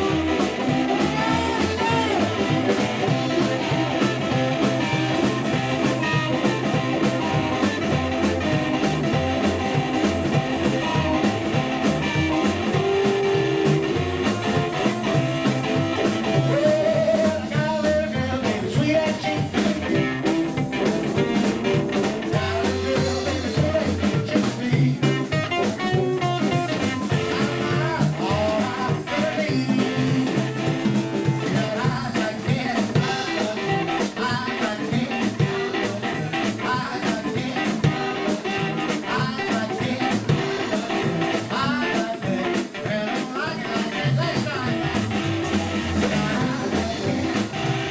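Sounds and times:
harmonica: 0.0 - 31.8
live blues band playing: 0.0 - 47.9
person singing: 0.0 - 47.9.

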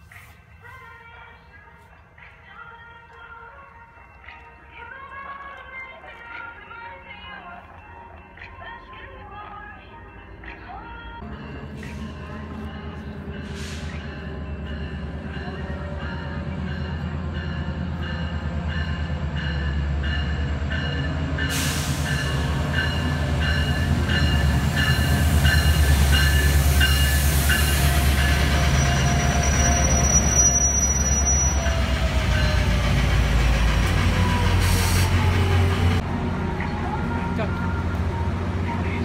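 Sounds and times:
diesel locomotive engine rumble: 7.5 - 39.0
faint brake squeal: 28.7 - 31.8.

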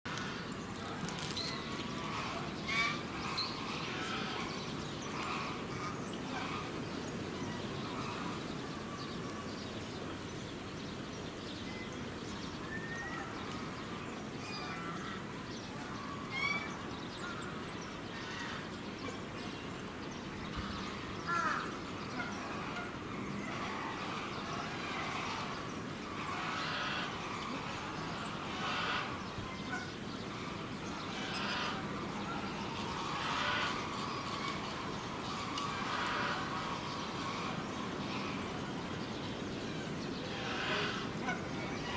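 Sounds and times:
geese honking: 26.2 - 32.0, 32.6 - 38.4.

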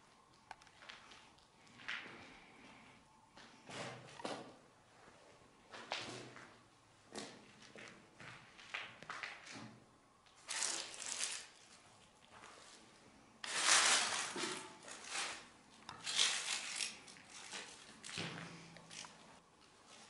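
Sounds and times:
rustling and scuffing of gear: 10.3 - 20.0.

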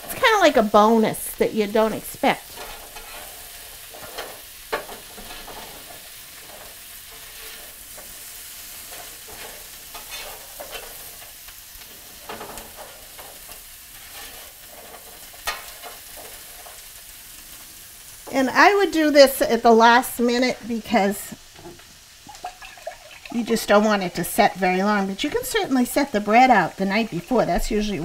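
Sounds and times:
vegetables sizzling in grill pan: 0.0 - 28.0
utensil scraping and clicking on pan: 2.5 - 16.9.

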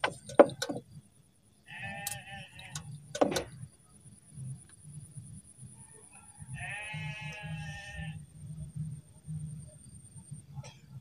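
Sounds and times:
animal bleating: 1.7 - 2.8, 6.5 - 8.2.

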